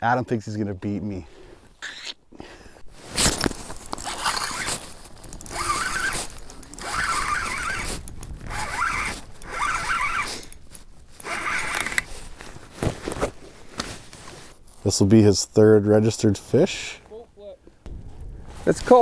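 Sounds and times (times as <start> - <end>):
fishing reel cranking: 4.0 - 10.6, 11.2 - 12.1.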